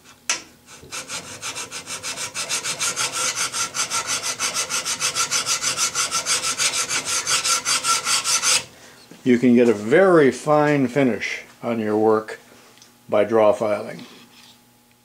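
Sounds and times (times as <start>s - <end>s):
file rasping on metal: 0.7s - 8.7s.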